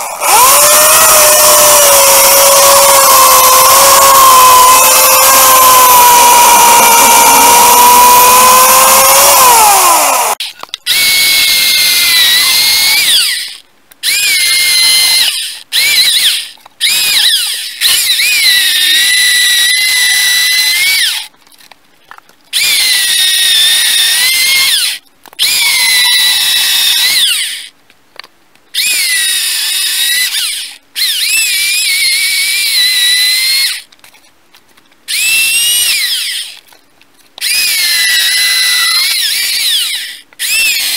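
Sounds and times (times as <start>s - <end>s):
electric chainsaw whining: 0.0s - 19.3s, 37.4s - 40.9s.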